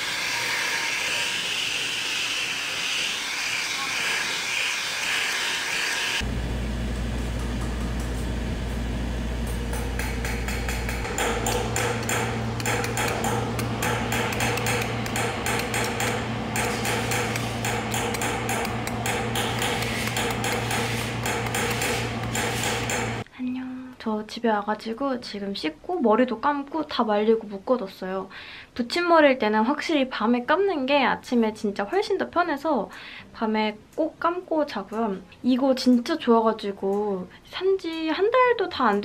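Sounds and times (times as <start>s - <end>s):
steady low hum: 6.2s - 24.0s
mallet striking sheet metal: 9.6s - 23.2s
gas torch hissing: 19.6s - 23.2s.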